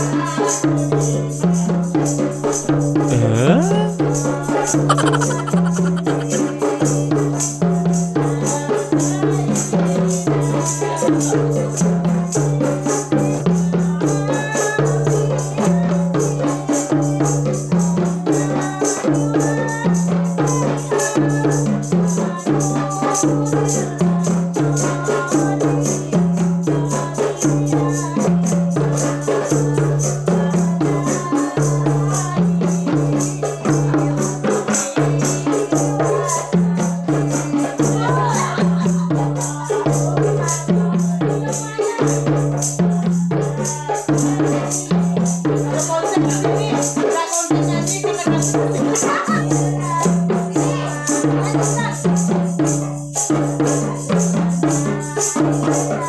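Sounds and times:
frame drums struck by hand: 0.0 - 56.0.

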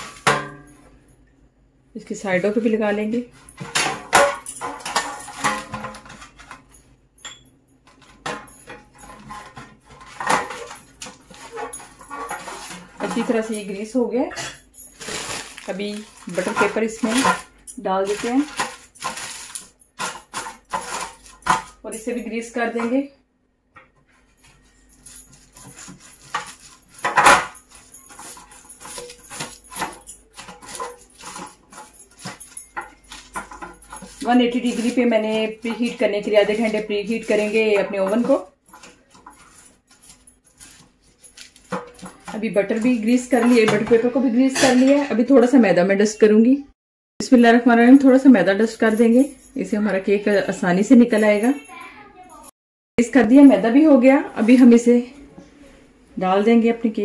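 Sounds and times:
metal pan clattering: 0.0 - 0.8, 3.3 - 13.7, 14.3 - 23.0, 25.6 - 45.4
pastry brush scraping cake pan: 8.9 - 14.0, 15.0 - 23.0, 24.2 - 44.9.

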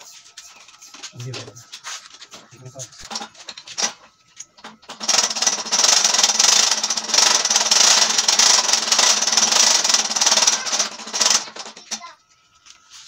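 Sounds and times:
electric drill grinding: 4.9 - 12.0.

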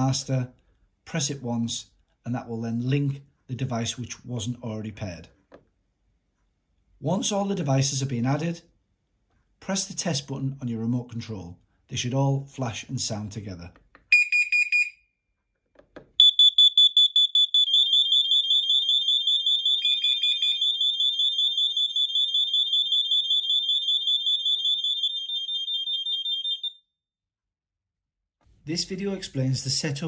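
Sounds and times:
high-pitched pulsed alarm beeping: 14.1 - 15.0, 16.2 - 26.8
short beep: 14.1 - 15.1, 16.2 - 18.4.

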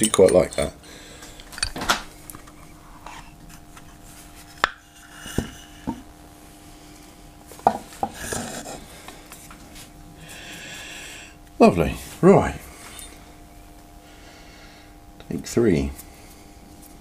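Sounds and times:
metal knocks and clinks: 0.0 - 0.8
faint steady hum: 0.0 - 17.0.

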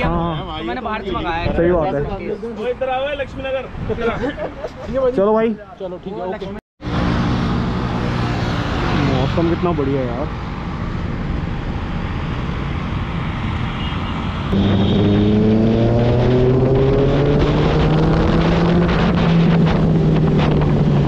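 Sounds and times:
motorcycle engine accelerating: 14.5 - 21.0
wind buffeting microphone: 15.4 - 21.0.

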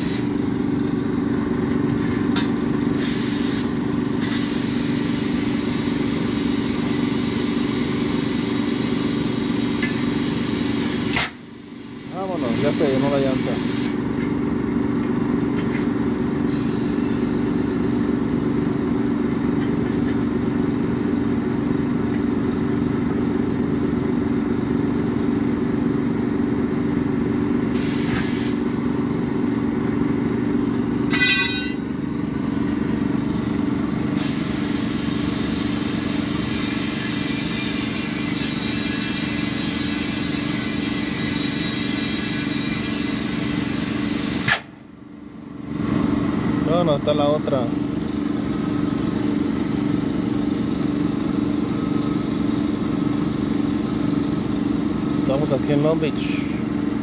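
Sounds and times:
air hissing from hose: 0.0 - 0.3, 3.0 - 14.0, 15.7 - 17.8, 27.7 - 28.6, 34.2 - 44.7
engine running: 0.0 - 57.0.

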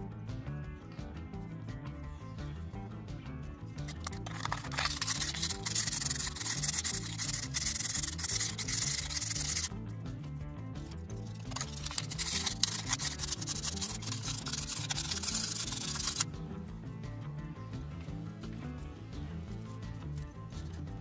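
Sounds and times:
faint background music: 0.0 - 21.0
abrasive cloth rubbing metal: 3.9 - 9.7, 11.3 - 16.2.

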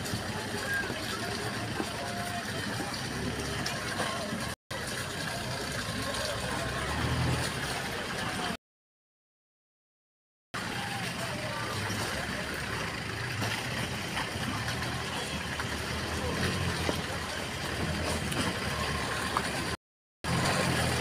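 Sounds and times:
engine running at low revs: 10.9 - 21.0.

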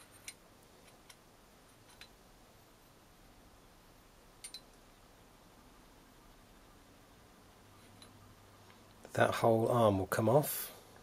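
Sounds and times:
small metal parts clicking: 4.4 - 4.7.

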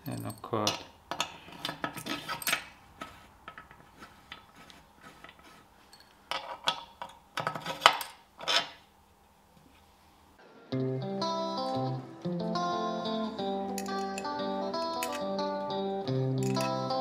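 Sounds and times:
metal bolts clinking: 0.0 - 2.8, 13.8 - 15.4, 16.2 - 17.0.

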